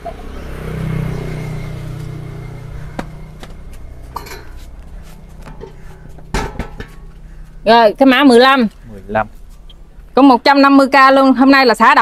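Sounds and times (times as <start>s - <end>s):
ceramic ringing clink: 4.2s - 4.6s
ceramic pot knocking: 5.4s - 7.2s.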